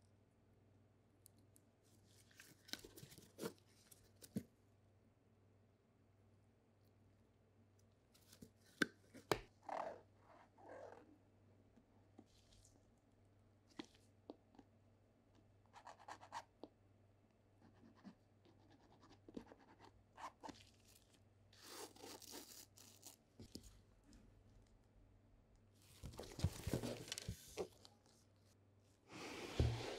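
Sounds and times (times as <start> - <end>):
rustling: 25.8 - 28.4.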